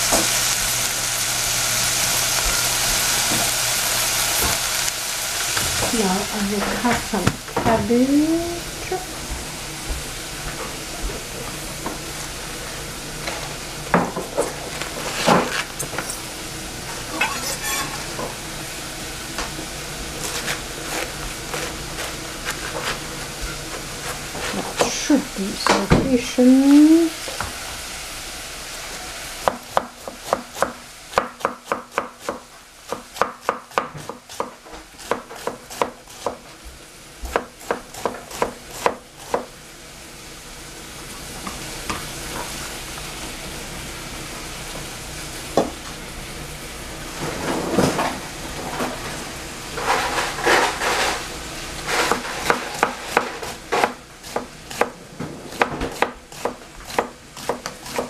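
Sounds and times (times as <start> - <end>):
knife chopping cabbage: 20.2 - 24.9, 29.4 - 36.4, 37.3 - 39.5, 52.0 - 58.0.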